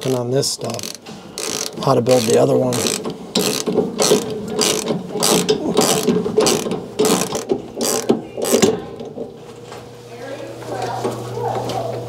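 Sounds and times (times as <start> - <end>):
ratchet wrench clicking: 0.0 - 8.7.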